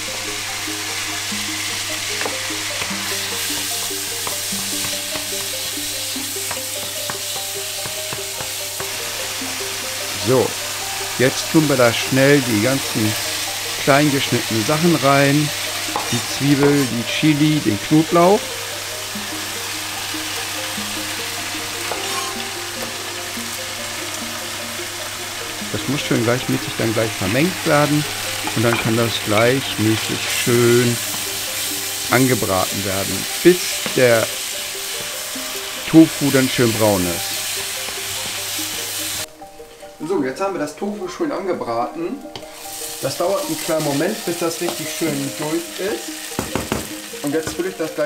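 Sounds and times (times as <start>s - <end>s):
tofu sizzling in a frying pan: 0.0s - 40.1s, 42.2s - 48.0s
background music: 0.0s - 48.0s
wooden spatula scraping a pan: 0.7s - 18.4s.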